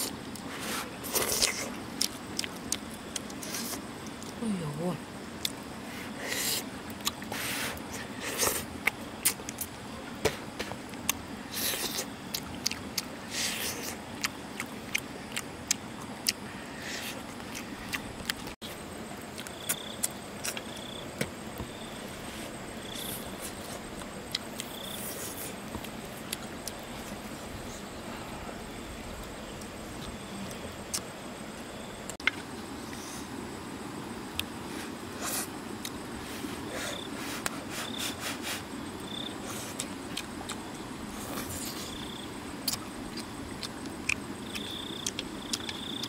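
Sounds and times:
chewing and mouth clicks: 0:01.1 - 0:04.4, 0:05.4 - 0:05.6, 0:06.8 - 0:07.3, 0:08.3 - 0:09.8, 0:10.9 - 0:16.5, 0:17.1 - 0:18.6, 0:19.3 - 0:21.0, 0:23.5 - 0:27.2, 0:29.2 - 0:31.1, 0:35.3 - 0:36.0, 0:39.4 - 0:46.0.

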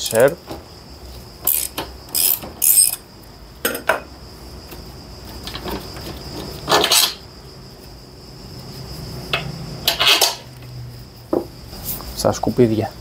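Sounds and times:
metal scraping rattle: 0:05.5 - 0:07.2, 0:09.8 - 0:10.5.

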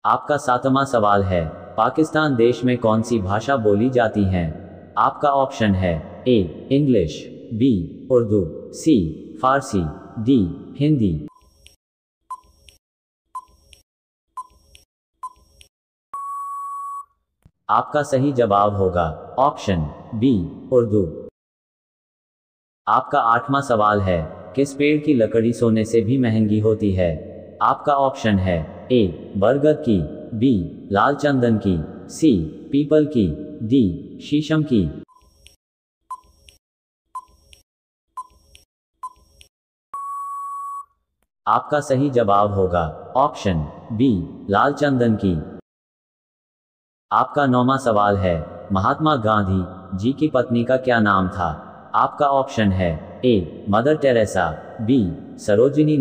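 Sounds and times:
steady electronic beep: 0:16.1 - 0:17.1, 0:40.0 - 0:40.9.

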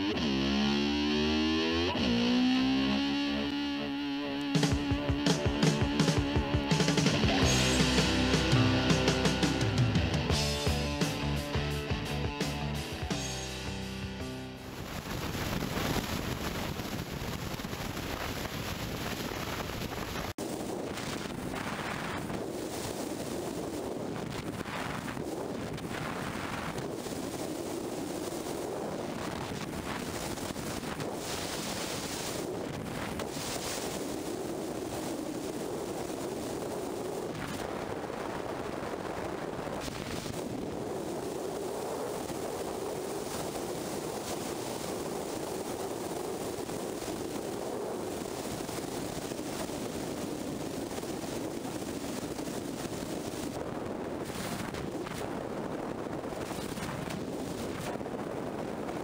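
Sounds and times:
road noise: 0:00.0 - 0:17.1
wind rushing over microphone: 0:14.6 - 0:59.0.

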